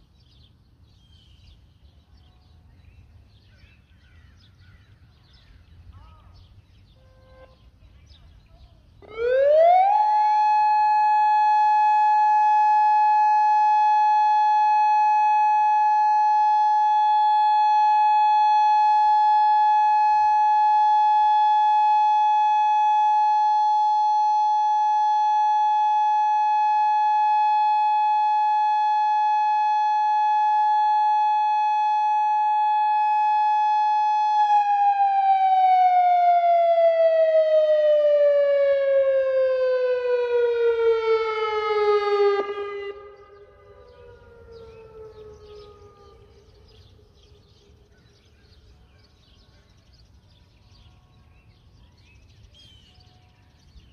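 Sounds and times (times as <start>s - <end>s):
electronic warning siren: 9.0s - 46.8s.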